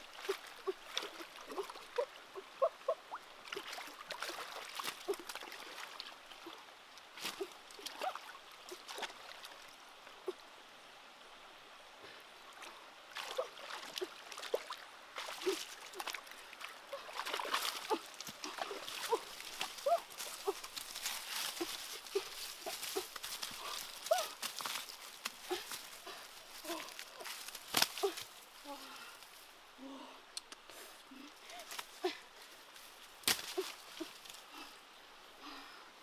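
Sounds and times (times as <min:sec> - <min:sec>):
hands splashing in stream: 0:12.6 - 0:28.4.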